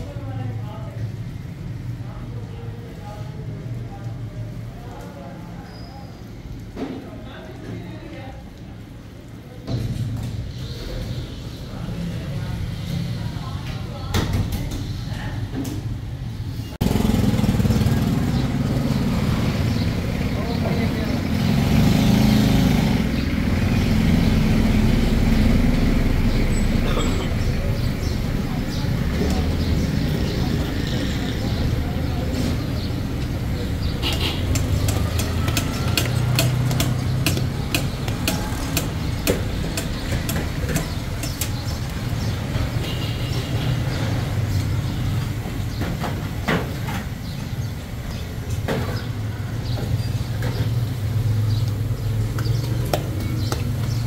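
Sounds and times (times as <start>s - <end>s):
sharp regular clicking: 34.0s - 42.0s.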